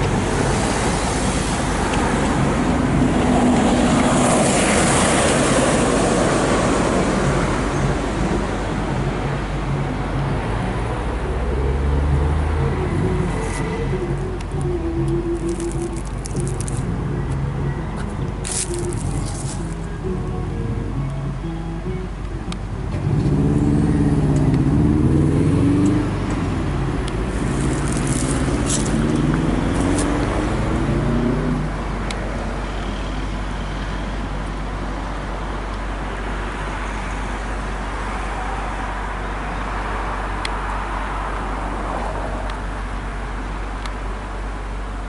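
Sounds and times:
vehicle engine accelerating: 0.0s - 34.1s
traffic noise: 0.0s - 45.0s.

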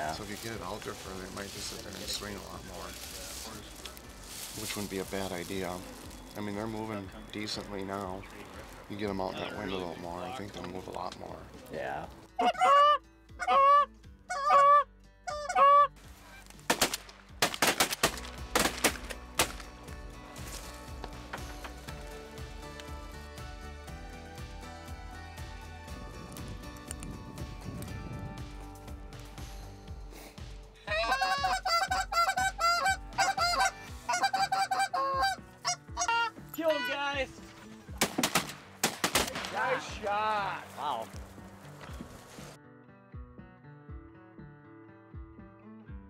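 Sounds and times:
goose call honks: 12.4s - 16.4s, 30.9s - 37.0s
shotgun blasts: 16.7s - 19.6s, 38.0s - 39.6s.

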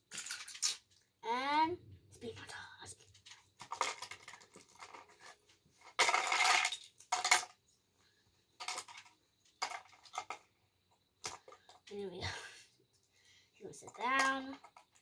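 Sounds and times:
plastic bricks clicking and clattering: 0.0s - 1.0s, 3.1s - 7.6s, 8.6s - 10.5s, 11.2s - 12.0s, 13.8s - 15.0s.

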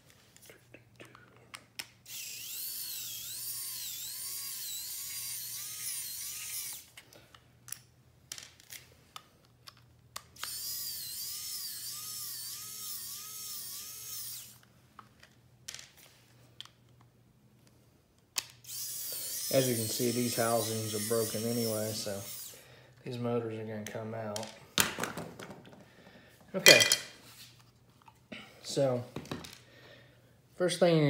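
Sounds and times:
electric screwdriver whining: 2.1s - 7.0s, 10.4s - 14.7s, 18.6s - 22.6s.

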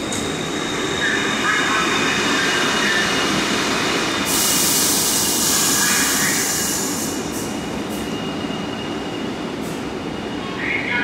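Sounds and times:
subway train wheels rumbling: 0.0s - 11.0s
air hissing: 4.2s - 7.5s.

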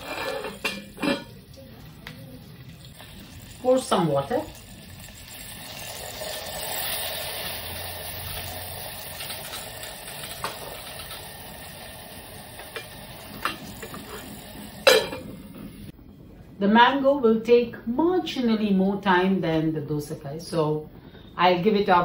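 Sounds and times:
food sizzling in hot oil: 0.0s - 15.9s.

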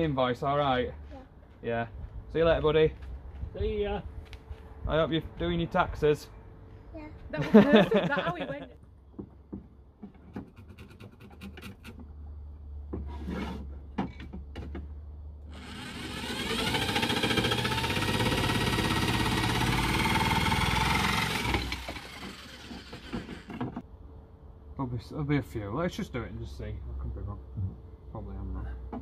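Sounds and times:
jigsaw cutting wood: 15.5s - 23.8s.

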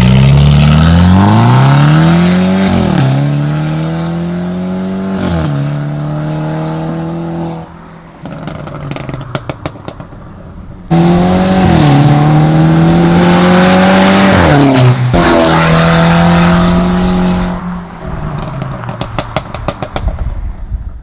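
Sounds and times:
car engine accelerating hard: 0.0s - 10.2s, 10.9s - 20.0s
exhaust crackles and pops: 8.2s - 10.3s, 18.3s - 20.4s.

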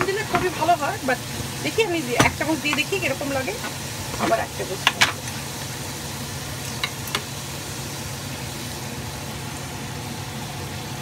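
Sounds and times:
low mechanical hum with hiss: 0.0s - 11.0s.

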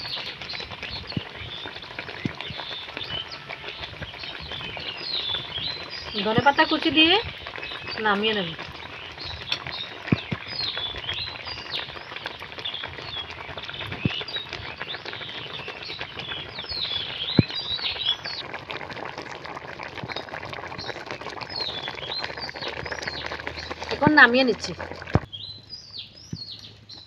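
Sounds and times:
small birds chirping: 0.0s - 19.2s, 19.8s - 27.0s
curry bubbling in a wok: 0.0s - 27.0s.

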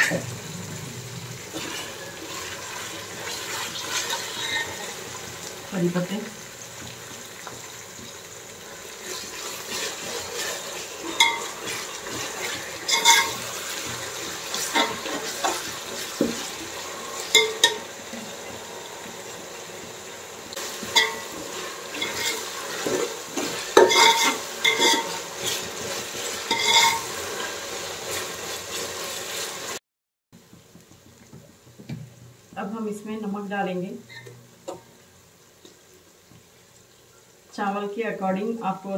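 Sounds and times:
leaves sizzling in hot oil: 0.0s - 29.8s, 30.4s - 38.9s
metal spoon clinking in pot: 11.2s - 11.5s, 26.5s - 27.0s.

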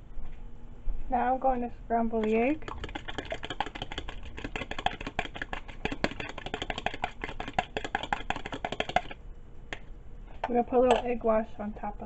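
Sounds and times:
fork beating egg in bowl: 2.1s - 9.9s.

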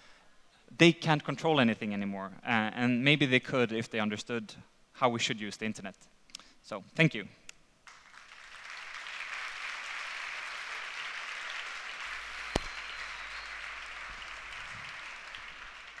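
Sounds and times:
audience applauding: 7.9s - 16.0s.

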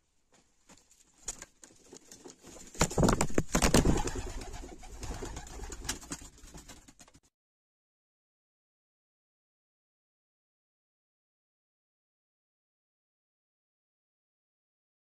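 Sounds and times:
pigeon wings fluttering: 1.1s - 7.3s.

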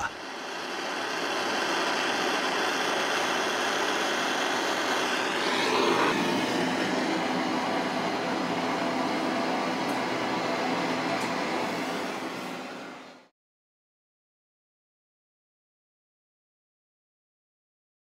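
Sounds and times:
propane torch hissing: 0.0s - 13.3s.

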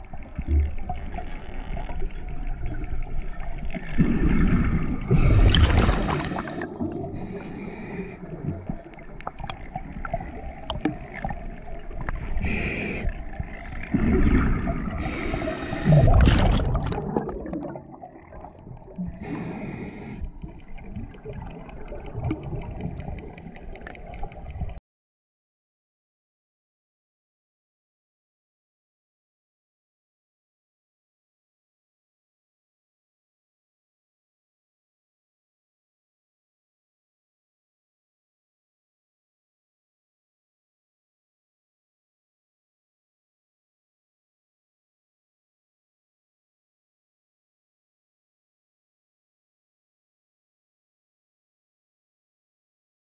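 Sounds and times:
gurgling bubbles gushing: 4.0s - 7.2s, 13.8s - 19.2s
low underwater rumble: 13.2s - 24.8s.

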